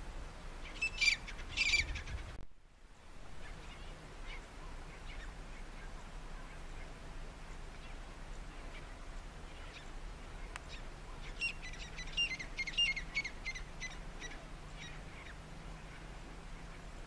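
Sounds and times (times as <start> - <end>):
francolin calling: 0.6 - 2.2, 7.6 - 16.9.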